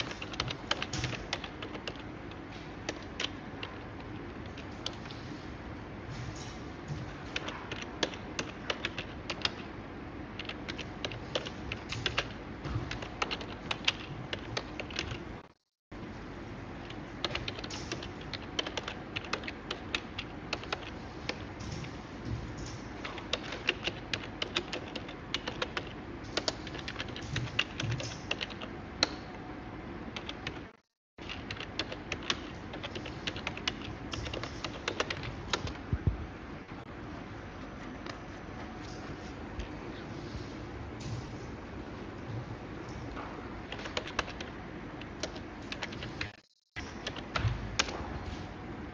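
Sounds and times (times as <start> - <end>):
typing on computer keyboard: 0.0 - 5.2, 7.0 - 9.7, 10.4 - 15.2, 16.8 - 21.8, 22.5 - 29.2, 30.2 - 35.8, 43.6 - 48.0.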